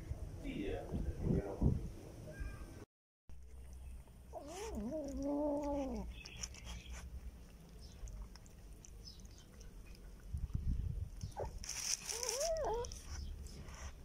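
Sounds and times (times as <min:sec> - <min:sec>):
kitten eating from plastic bag: 0:04.4 - 0:13.9.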